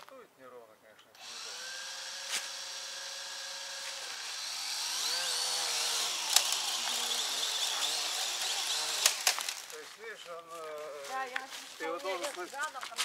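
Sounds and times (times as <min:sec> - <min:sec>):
drone propellers whirring: 0:01.2 - 0:09.7.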